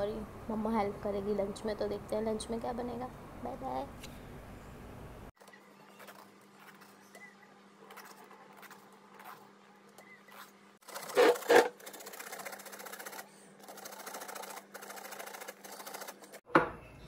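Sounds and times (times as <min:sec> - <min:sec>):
vegetable rasping on metal grater: 0:10.3 - 0:16.4.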